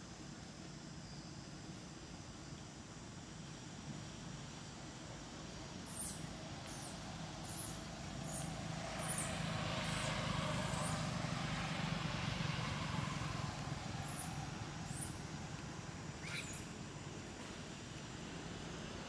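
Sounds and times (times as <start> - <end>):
motor vehicle passing: 7.0 - 16.7.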